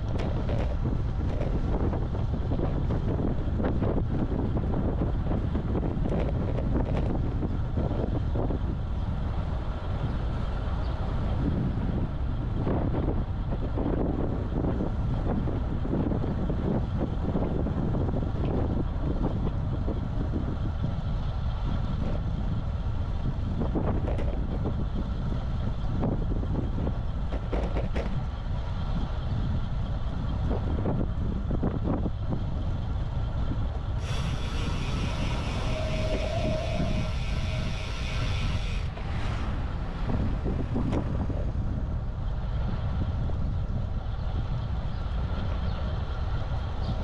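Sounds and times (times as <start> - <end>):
wind rumbling on microphone: 0.0 - 47.0
higher buzzing sound: 34.0 - 39.4.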